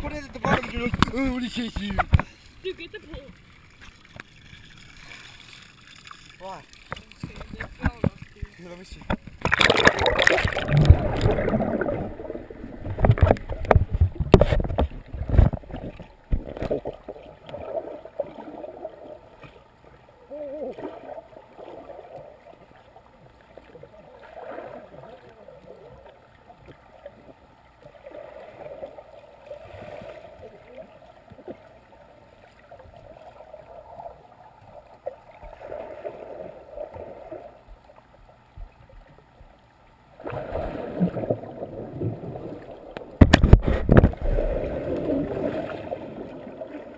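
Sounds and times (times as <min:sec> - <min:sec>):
muffled underwater gurgle: 0:06.4 - 0:19.4, 0:20.2 - 0:22.8
loud splashing: 0:09.4 - 0:14.6.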